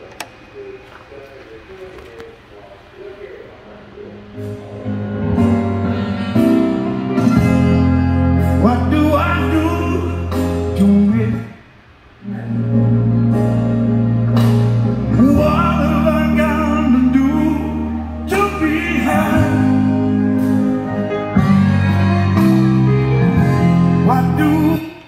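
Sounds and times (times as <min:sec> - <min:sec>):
song with singing through speaker: 0:06.0 - 0:25.0.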